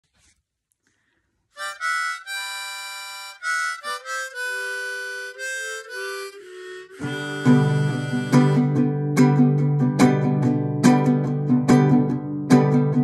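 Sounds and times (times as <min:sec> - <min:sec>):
harmonica melody: 0:01.6 - 0:09.8.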